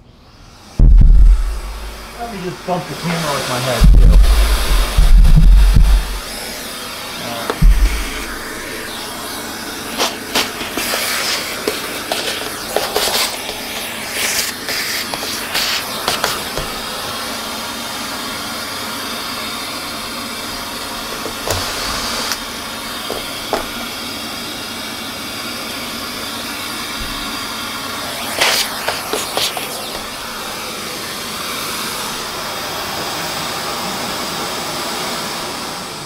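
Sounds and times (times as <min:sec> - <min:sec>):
vacuum suction hiss: 0:00.0 - 0:36.0.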